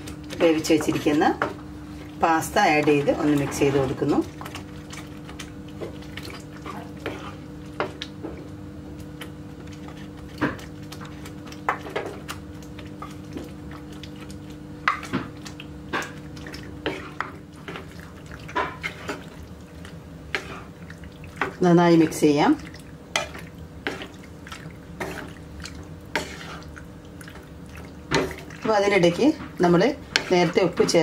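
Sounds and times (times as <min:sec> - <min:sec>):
steady low hum: 0:00.0 - 0:31.0
stirring in pan: 0:00.0 - 0:31.0.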